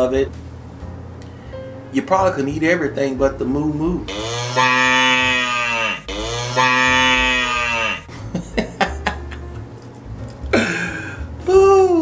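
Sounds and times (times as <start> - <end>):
cow mooing: 4.4 - 8.1.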